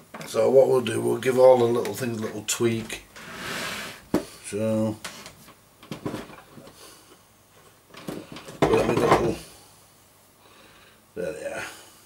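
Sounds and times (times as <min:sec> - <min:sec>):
noisy rustle: 0:01.5 - 0:09.5.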